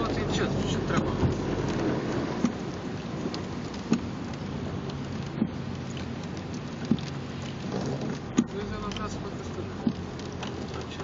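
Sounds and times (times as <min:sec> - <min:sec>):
heavy rain on car roof: 0:00.0 - 0:11.0
windshield wipers knocking: 0:00.0 - 0:11.0.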